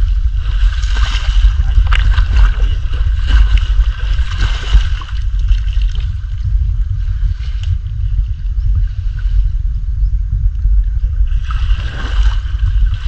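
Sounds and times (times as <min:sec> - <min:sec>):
low rumble on microphone: 0:00.0 - 0:13.0
stream water splashing and gurgling: 0:00.3 - 0:06.5, 0:11.3 - 0:13.0.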